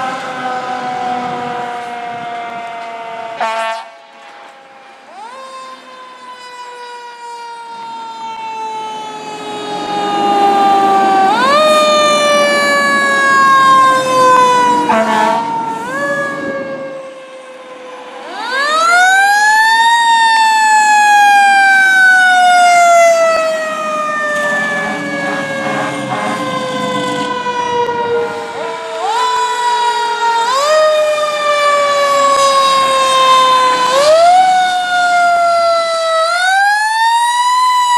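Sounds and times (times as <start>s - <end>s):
fire truck siren wailing: 0.0s - 37.9s.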